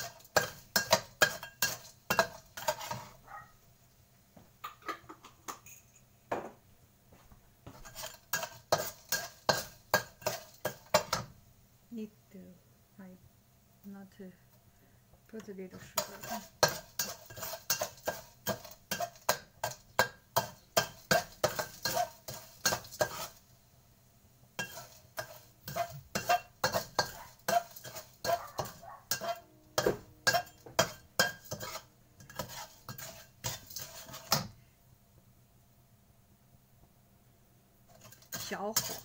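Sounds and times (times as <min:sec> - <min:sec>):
metal spoon scraping a wok: 0:00.0 - 0:03.2, 0:07.8 - 0:11.3, 0:15.8 - 0:23.4, 0:24.6 - 0:34.6, 0:37.9 - 0:39.0.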